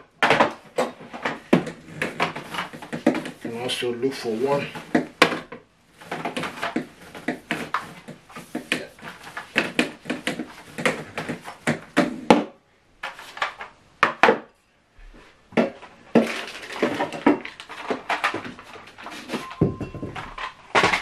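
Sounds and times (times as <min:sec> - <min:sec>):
vacuum accessories clattering: 0:15.8 - 0:21.0.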